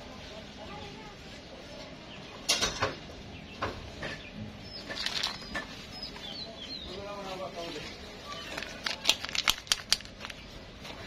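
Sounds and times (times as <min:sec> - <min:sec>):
plastic wrappers crinkling: 0:04.8 - 0:06.2, 0:07.2 - 0:11.0.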